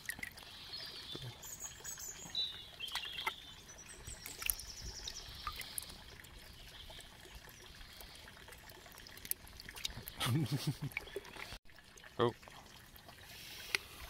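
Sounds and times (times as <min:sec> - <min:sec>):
water trickling and dripping: 0:00.0 - 0:14.0.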